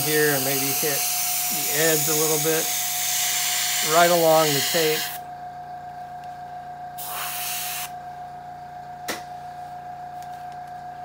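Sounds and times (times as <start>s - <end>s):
steady background hum: 0.0s - 11.0s
airbrush air hiss: 7.0s - 7.9s.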